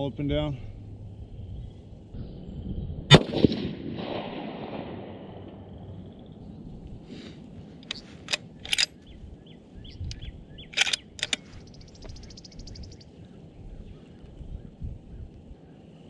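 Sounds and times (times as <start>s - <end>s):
wind buffeting microphone: 0.0s - 16.0s
birds calling: 5.7s - 16.0s
bird trill: 7.9s - 14.3s.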